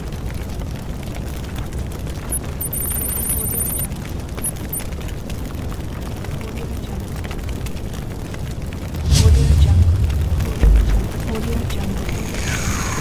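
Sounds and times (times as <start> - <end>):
fire roaring: 0.0 - 2.6, 3.9 - 13.0
rapid high ticking: 2.3 - 4.9.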